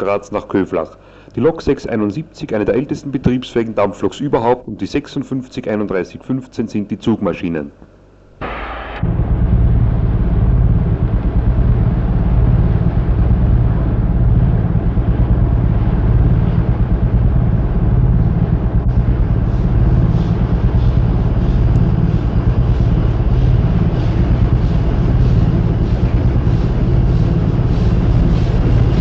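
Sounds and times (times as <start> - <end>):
rapid engine beat: 8.4 - 29.0
steam train rumbling: 8.4 - 29.0.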